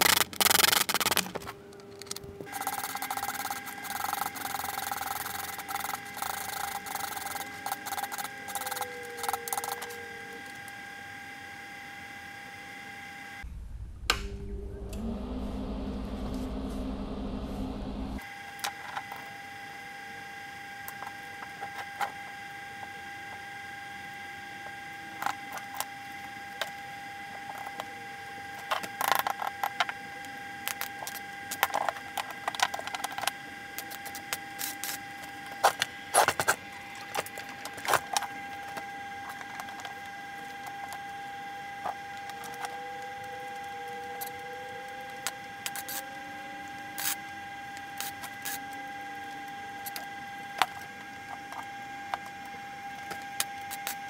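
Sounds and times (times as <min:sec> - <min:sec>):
high electrical hum: 0:00.0 - 0:54.0.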